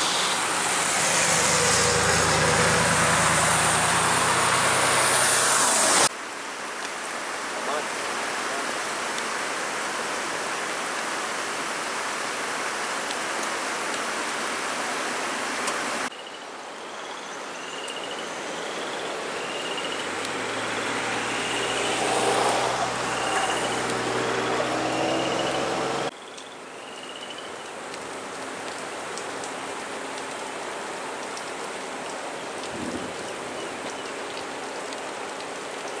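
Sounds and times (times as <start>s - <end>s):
vehicle engine: 0.0s - 6.1s, 20.0s - 26.1s
floodwater rushing: 0.0s - 36.0s
rain on floodwater: 0.0s - 36.0s.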